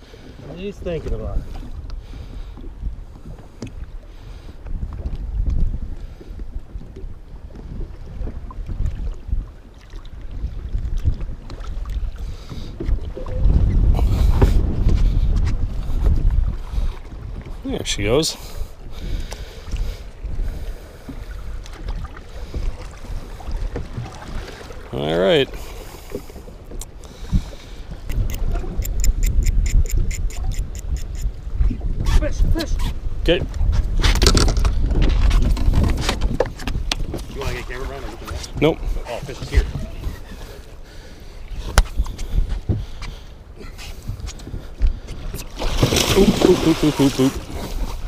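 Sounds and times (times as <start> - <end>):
water lapping against boat: 0.0 - 48.0
wind buffeting microphone: 0.0 - 48.0
fishing reel ticking: 28.0 - 31.4.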